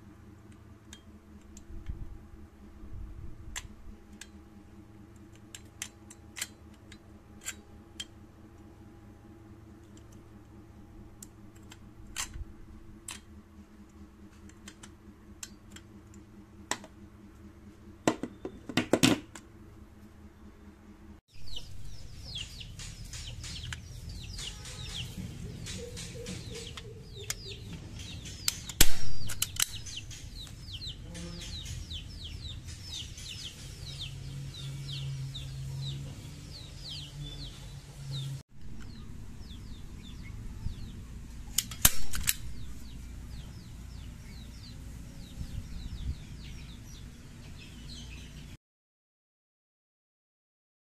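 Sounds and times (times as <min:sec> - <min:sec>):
birds chirping: 0:20.2 - 0:48.6
staple gun snapping: 0:41.6 - 0:42.4.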